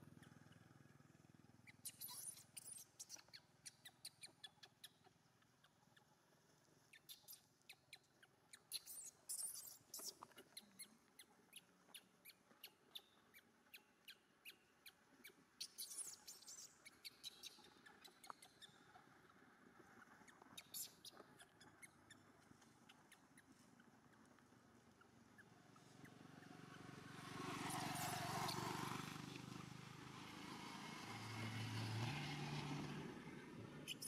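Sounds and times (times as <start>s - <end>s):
infant monkey squeaking cries: 1.7s - 5.2s, 8.6s - 10.9s, 15.6s - 18.9s, 20.6s - 22.3s.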